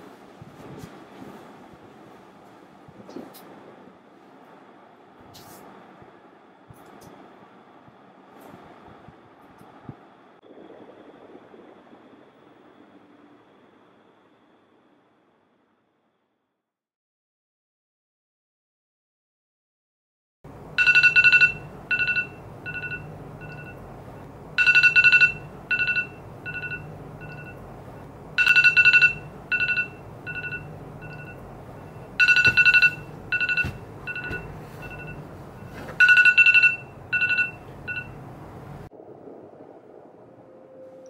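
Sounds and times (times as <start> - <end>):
smartphone alarm beeps: 20.8 - 23.8, 24.6 - 27.6, 28.4 - 38.2.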